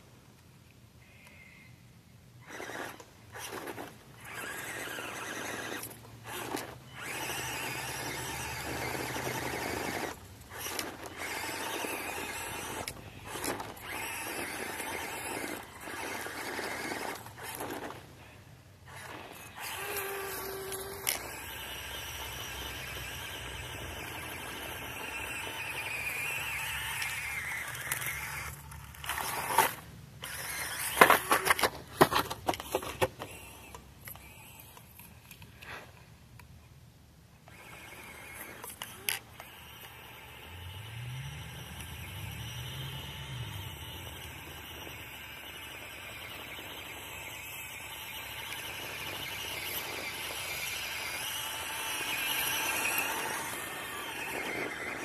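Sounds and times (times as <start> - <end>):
small electric motor whining: 2.4 - 35.9, 37.4 - 55.0.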